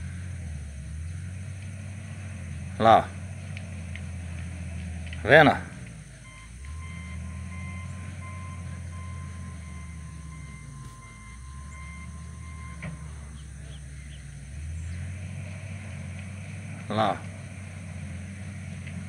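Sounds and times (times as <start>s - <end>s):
distant heavy machine engine: 0.0s - 19.0s
reverse alarm beeping: 6.2s - 14.2s.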